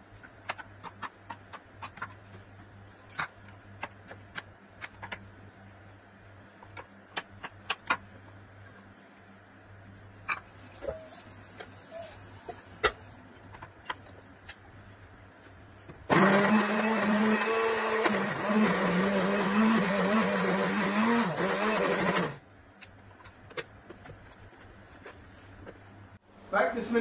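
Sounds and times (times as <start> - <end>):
kitchen blender running: 16.1 - 22.4.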